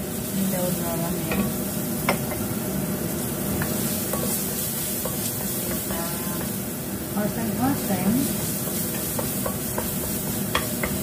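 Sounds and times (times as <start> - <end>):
aromatics sizzling in a wok: 0.0 - 11.0
wooden spatula scraping wok: 7.6 - 11.0.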